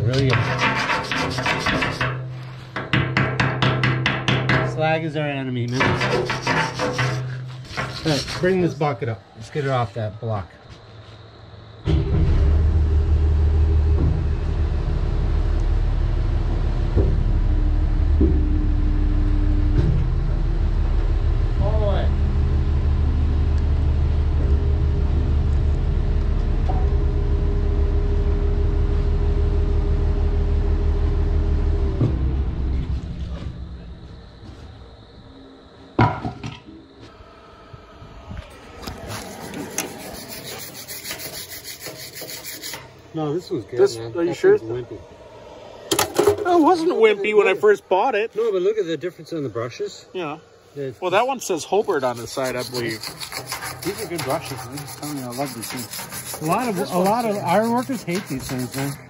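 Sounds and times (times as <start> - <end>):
wire brush scraping: 0.0 - 2.7, 5.7 - 8.7, 38.8 - 43.0, 51.8 - 59.0
loud knock: 2.8 - 4.8
wheel loader engine running: 12.0 - 35.2.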